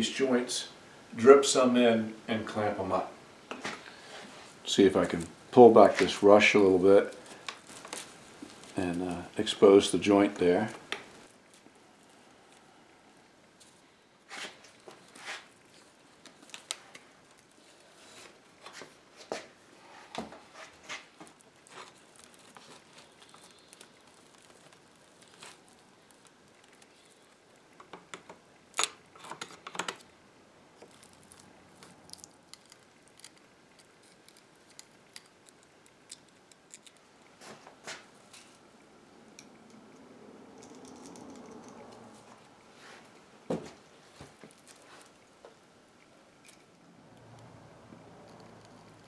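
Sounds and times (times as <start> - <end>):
dry rush cord rustling and scraping: 13.6 - 27.4.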